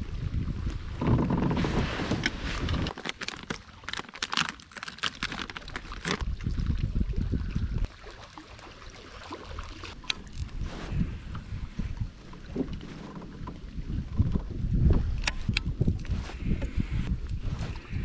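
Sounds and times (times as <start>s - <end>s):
wind buffeting microphone: 0.0s - 2.9s, 5.9s - 7.9s, 10.2s - 18.0s
plastic packet crinkling: 2.9s - 6.2s.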